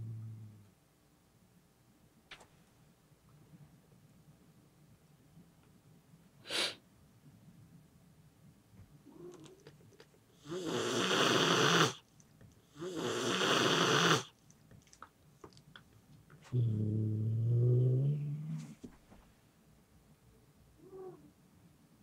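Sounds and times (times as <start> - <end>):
cat hissing: 6.4 - 6.8, 10.4 - 12.0, 12.8 - 14.3
cat growling: 9.0 - 12.0, 12.7 - 14.3, 16.5 - 18.8.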